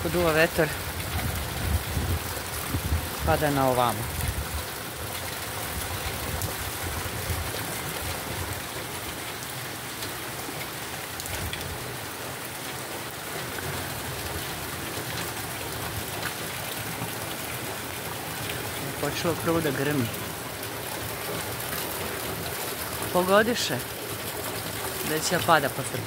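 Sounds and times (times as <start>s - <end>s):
heavy rain pouring: 0.0s - 26.0s
wind rumbling on microphone: 0.8s - 4.8s.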